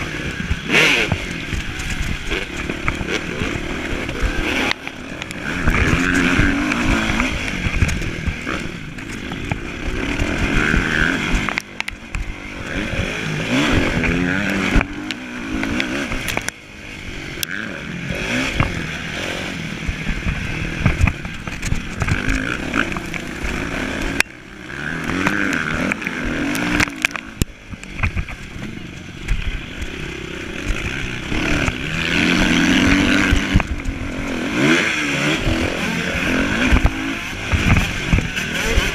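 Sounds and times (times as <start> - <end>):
motocross bike engine revving: 0.0 - 38.9
bike knocks and rattles: 19.9 - 32.0, 32.7 - 38.9.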